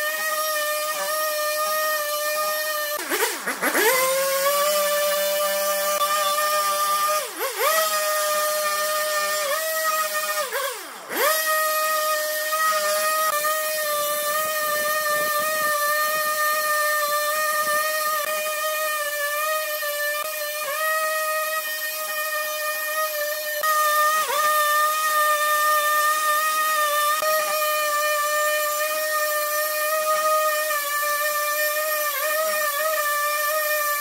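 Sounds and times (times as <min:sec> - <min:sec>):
chainsaw cutting log: 0:00.0 - 0:34.0.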